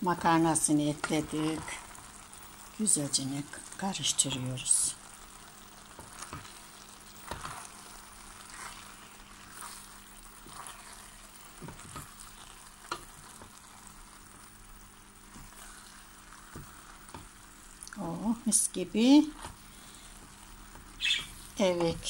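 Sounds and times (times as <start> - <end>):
pan sizzling quietly: 0.0 - 22.0
wooden spoon stirring pasta: 5.3 - 14.6, 15.2 - 17.9, 19.2 - 22.0.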